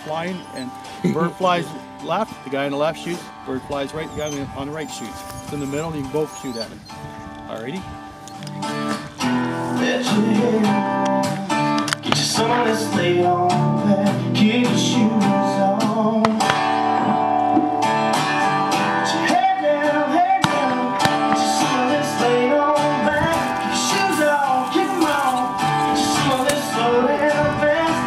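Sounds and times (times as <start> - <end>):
strummed acoustic guitar: 0.0 - 28.0
person singing: 9.6 - 18.0, 18.7 - 28.0.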